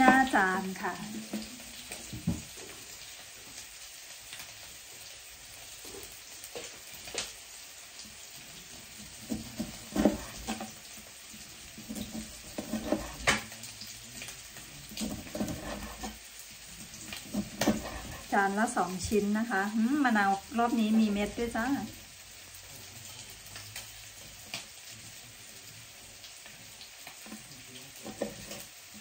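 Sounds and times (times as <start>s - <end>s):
knife slicing lemon: 9.3s - 10.6s, 11.9s - 13.4s, 15.0s - 16.2s, 17.2s - 18.3s.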